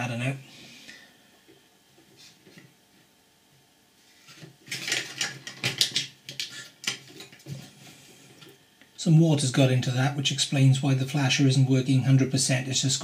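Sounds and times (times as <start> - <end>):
plastic parts clicking and rattling: 4.6 - 7.5.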